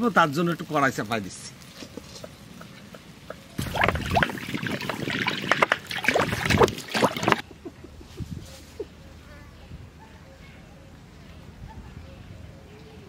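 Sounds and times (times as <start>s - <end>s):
water splashing into pot: 3.6s - 7.4s.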